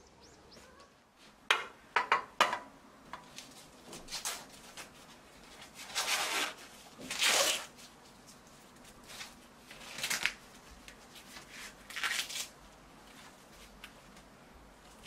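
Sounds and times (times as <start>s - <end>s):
faint bird chirps: 0.0s - 1.0s
corn husks ripping and rustling: 3.3s - 13.9s.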